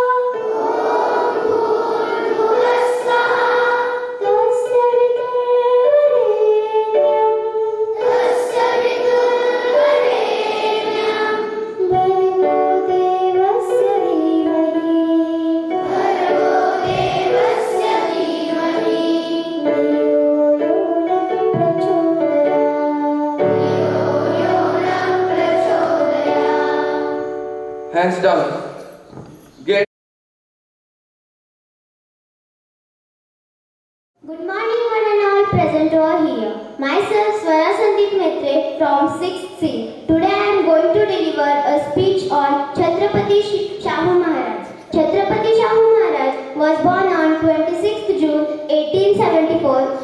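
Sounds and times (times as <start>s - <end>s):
girls singing together: 0.0s - 27.4s.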